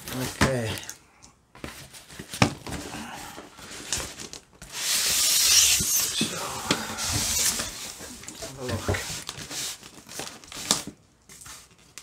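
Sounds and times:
polystyrene sliding out of cardboard: 3.6s - 10.8s.

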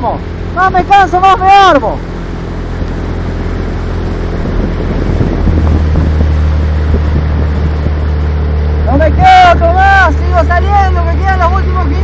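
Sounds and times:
motorboat engine running: 0.0s - 12.0s
water rushing past hull: 0.0s - 12.0s
wind noise on microphone: 2.5s - 9.8s.

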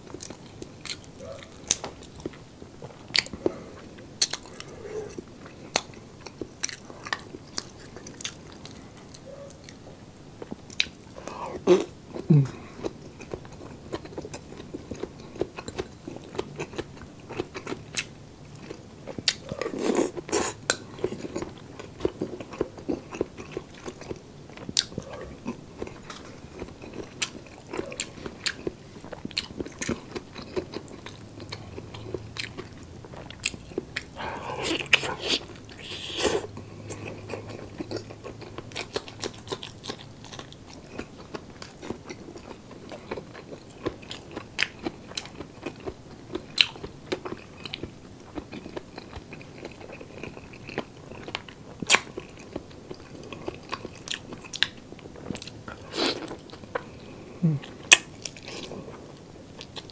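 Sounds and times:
person chewing: 0.0s - 59.9s
wet mouth clicks: 34.2s - 36.5s.

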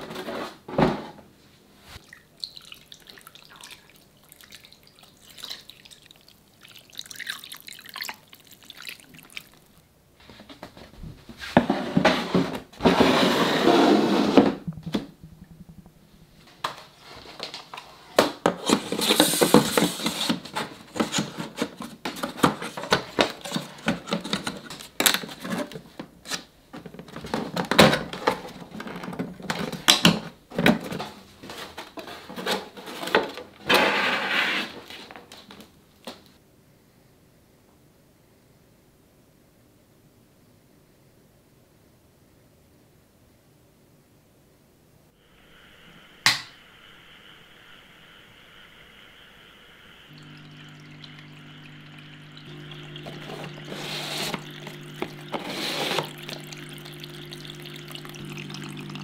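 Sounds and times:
water pouring and splashing: 2.0s - 9.8s, 18.5s - 25.8s, 50.1s - 59.0s
water dripping: 2.0s - 9.9s, 50.1s - 59.0s.

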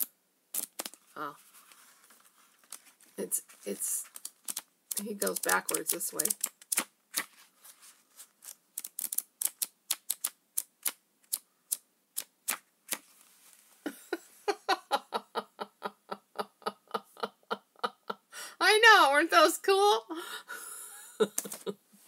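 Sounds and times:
flip book pages clicking: 0.6s - 1.0s, 4.0s - 7.4s, 8.4s - 13.1s.

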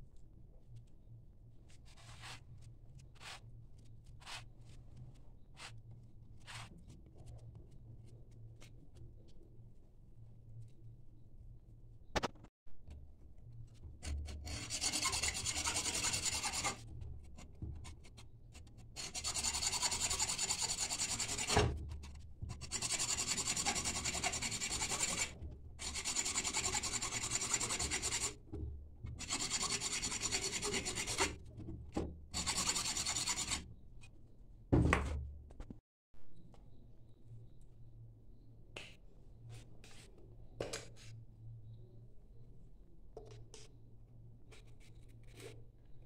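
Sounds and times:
hacksaw cutting coconut shell: 14.5s - 16.8s, 19.0s - 21.7s, 22.6s - 28.4s, 29.2s - 31.4s.

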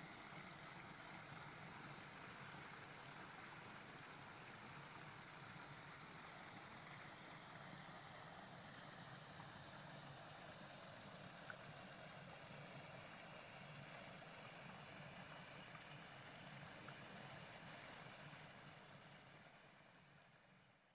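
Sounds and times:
small tick: 11.4s - 11.7s.

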